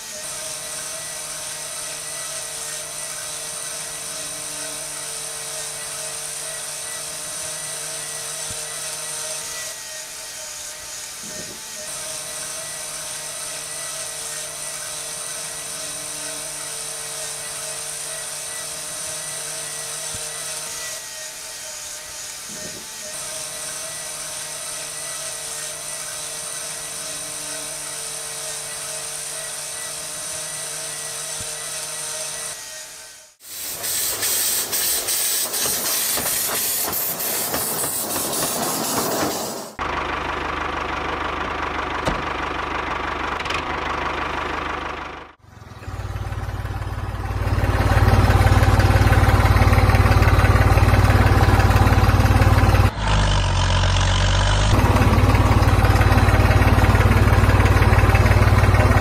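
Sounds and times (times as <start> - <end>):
small electric motor whining: 0.0 - 59.0
hiss with fast regular clicking: 33.4 - 39.8.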